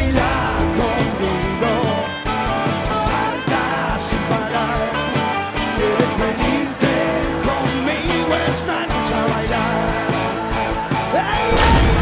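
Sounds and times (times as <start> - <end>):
bass guitar: 0.0 - 12.0
electric guitar: 0.0 - 12.0
saxophone melody: 1.5 - 6.4.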